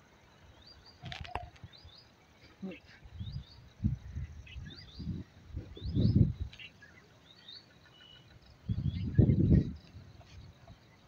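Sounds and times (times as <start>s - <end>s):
small birds chirping: 0.0s - 11.0s
wind buffeting microphone: 3.0s - 6.6s, 8.4s - 10.8s.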